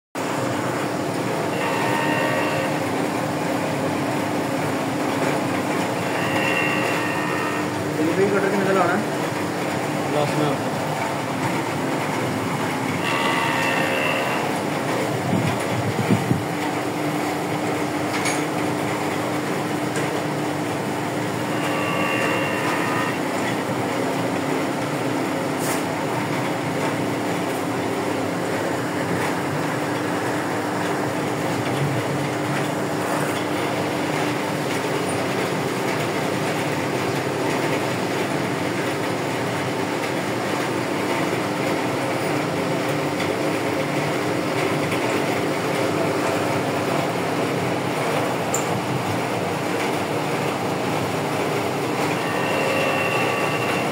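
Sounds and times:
router milling metal: 6.1s - 8.3s, 13.0s - 14.5s, 21.4s - 23.2s
spindle tone: 52.2s - 53.9s.

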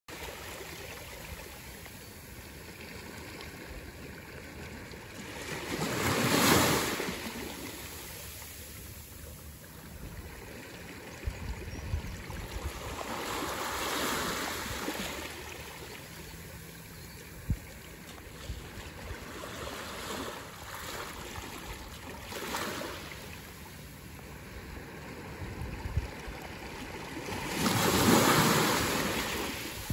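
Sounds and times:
small waves breaking on beach: 0.1s - 29.9s.

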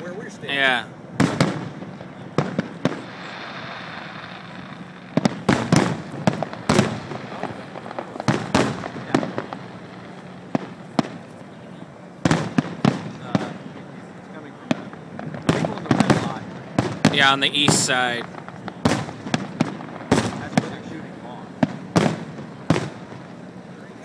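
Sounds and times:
fireworks bursting with bangs: 0.5s - 24.0s.

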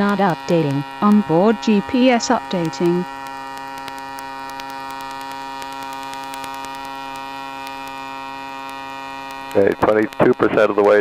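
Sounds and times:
drone engine and propeller hovering: 0.0s - 11.0s.

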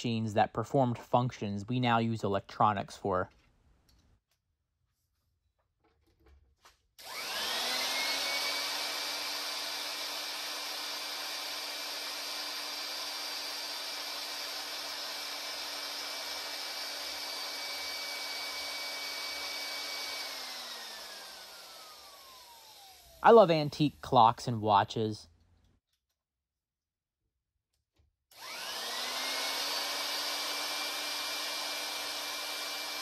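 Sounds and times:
electric drill whining: 7.0s - 23.2s, 28.3s - 33.0s
drill spinning down: 7.0s - 23.4s, 28.3s - 33.0s.

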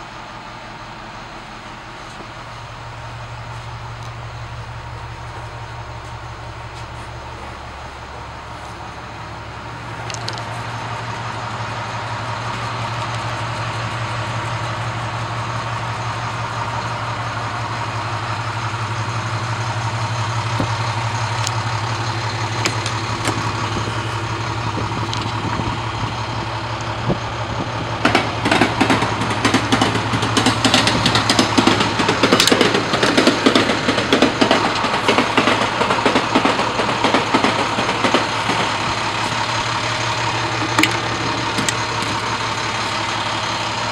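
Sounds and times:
diesel engine idling: 0.0s - 43.9s
rapid uneven clatter: 28.0s - 43.9s.

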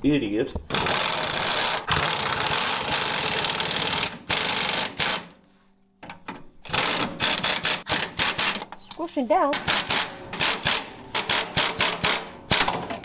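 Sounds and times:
pneumatic impact wrench hammering: 0.7s - 5.4s, 6.6s - 8.7s, 9.6s - 13.0s.

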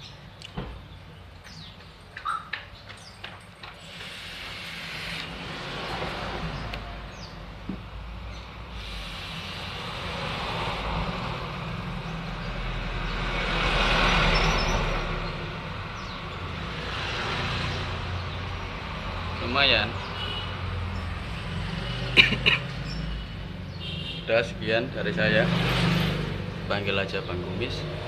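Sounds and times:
hissing vapor breath: 3.8s - 5.3s, 8.7s - 10.8s.

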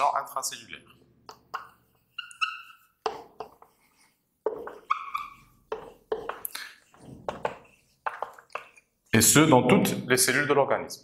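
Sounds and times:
marker squeaking: 1.2s - 9.4s
marker scratching on whiteboard: 1.2s - 9.6s.

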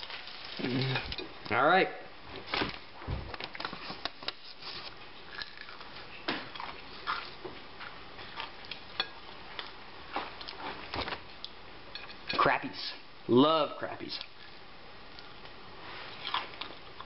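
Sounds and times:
chewing crunches: 5.2s - 7.4s, 8.2s - 10.7s, 16.1s - 17.0s.

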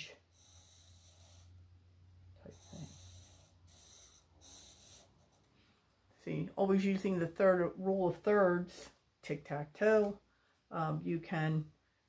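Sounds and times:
faint breathing: 0.2s - 5.9s.

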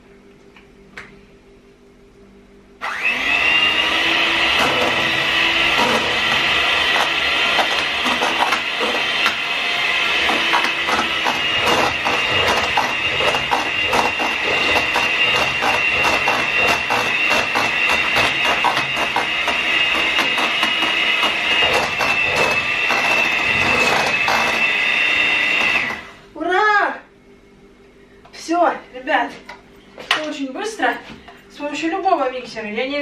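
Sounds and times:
electric hand mixer whining: 2.8s - 26.2s.

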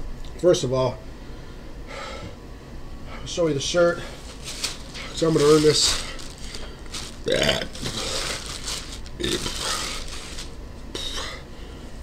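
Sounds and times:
plastic bag crinkling: 4.1s - 10.6s
man burping: 7.3s - 7.9s, 9.2s - 9.6s.

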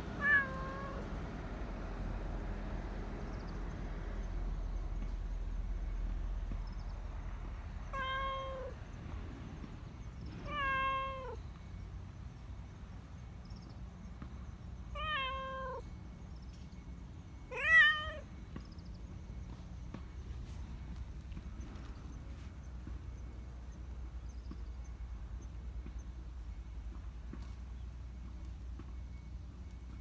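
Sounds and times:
cat meowing: 0.2s - 1.0s, 7.9s - 8.8s, 10.4s - 11.4s, 15.0s - 15.8s, 17.5s - 18.3s.

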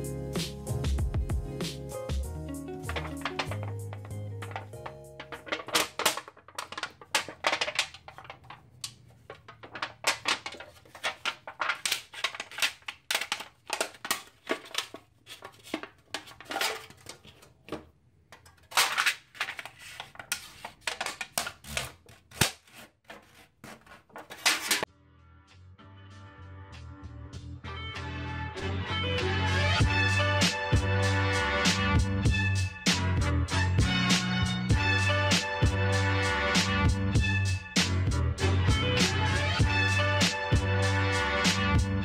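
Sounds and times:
aluminium sheet crinkling: 2.8s - 24.9s.

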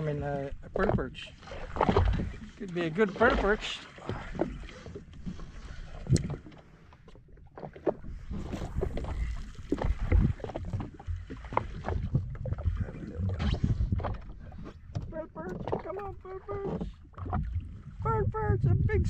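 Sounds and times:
waves slapping against hull: 0.0s - 19.0s
low rumble: 12.0s - 19.0s.

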